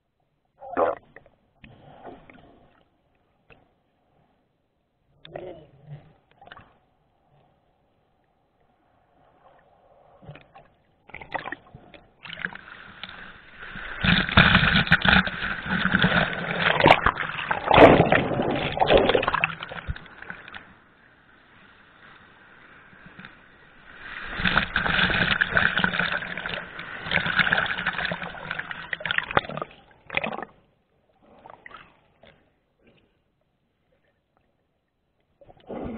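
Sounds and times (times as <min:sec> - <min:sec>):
water sloshing and splashing: 0:09.3 - 0:20.8, 0:22.6 - 0:33.0.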